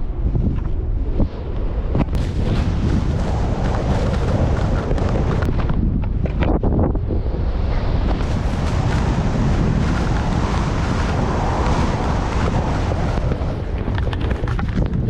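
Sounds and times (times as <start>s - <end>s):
wind rumble on microphone: 0.0s - 15.0s
skis scraping through snow: 2.1s - 5.6s, 7.7s - 15.0s.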